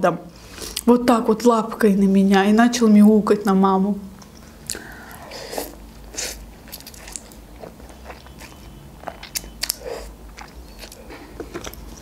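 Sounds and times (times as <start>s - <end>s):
wet mouth clicks: 4.2s - 7.4s
chewing noodles: 4.3s - 12.0s.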